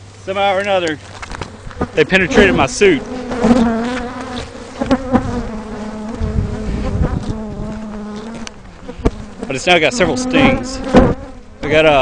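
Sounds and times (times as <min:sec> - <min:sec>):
bees buzzing: 0:00.0 - 0:12.0.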